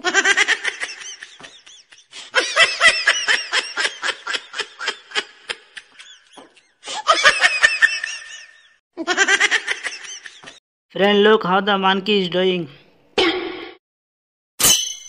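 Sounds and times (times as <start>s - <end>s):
person laughing hard: 0.0s - 10.6s.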